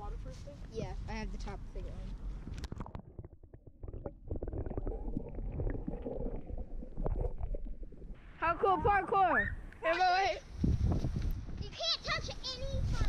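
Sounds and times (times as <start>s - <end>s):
muffled underwater gurgling: 2.6s - 8.2s.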